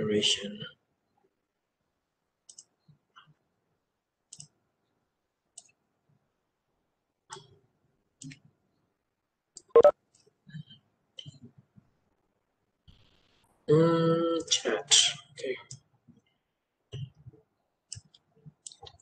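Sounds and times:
small clicks and taps at a desk: 2.4 - 3.4, 4.3 - 4.6, 5.5 - 5.8, 7.3 - 7.6, 8.2 - 8.5, 9.5 - 11.9, 15.6 - 19.0.

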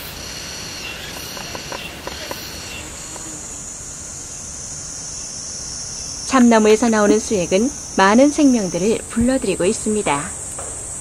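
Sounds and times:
insects chorus: 0.0 - 11.0
faint ticks: 1.0 - 3.4.

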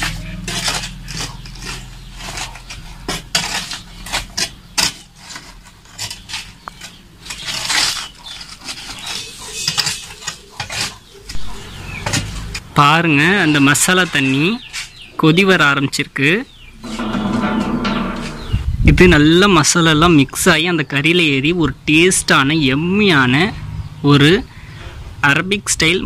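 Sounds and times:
metal rod raking charcoal: 0.0 - 12.6, 16.7 - 19.2.

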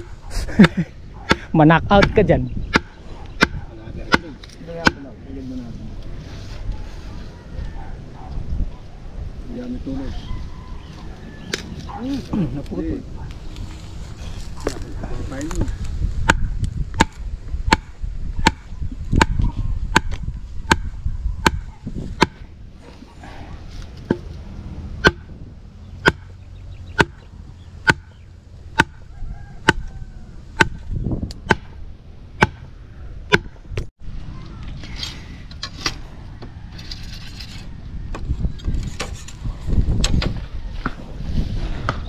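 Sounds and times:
machete chopping into ground: 27.0 - 27.2.

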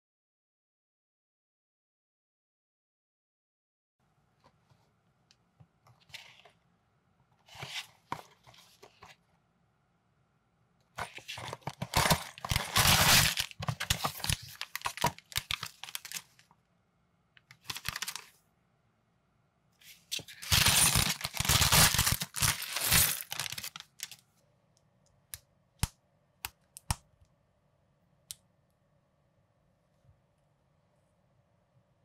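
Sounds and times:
plastic bag crinkling and tearing: 11.0 - 16.4, 17.6 - 18.3, 20.3 - 24.2
cardboard box tearing open: 11.2 - 16.2, 20.4 - 23.8.

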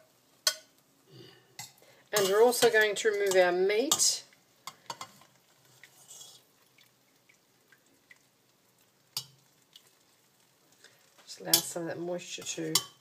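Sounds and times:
metal utensils clinking on pot: 0.4 - 0.7, 1.6 - 5.3, 11.3 - 13.0
liquid dripping into pot: 3.2 - 11.8.

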